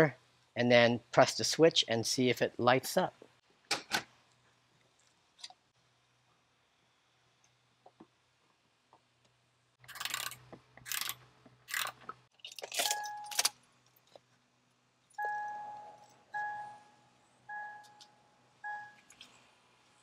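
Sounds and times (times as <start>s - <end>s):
car warning chime dinging: 12.9s - 13.4s, 15.2s - 19.1s.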